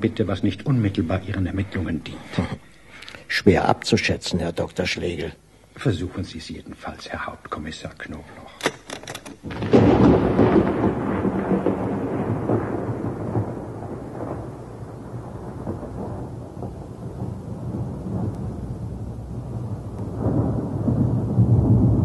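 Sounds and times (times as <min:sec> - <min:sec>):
thunder rumbling: 0:00.0 - 0:02.7, 0:09.4 - 0:22.0
steady rain: 0:00.0 - 0:08.4, 0:09.4 - 0:22.0.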